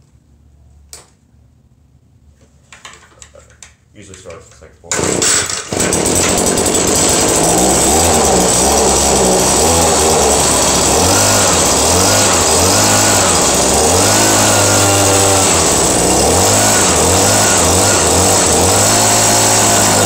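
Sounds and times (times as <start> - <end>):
leaf blower engine running: 4.9 - 20.0.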